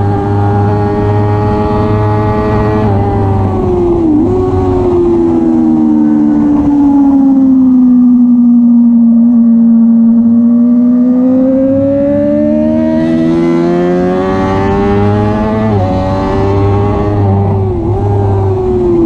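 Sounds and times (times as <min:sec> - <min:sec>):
motorcycle engine at full throttle: 0:00.0 - 0:19.0
wind rush on microphone: 0:00.0 - 0:19.0.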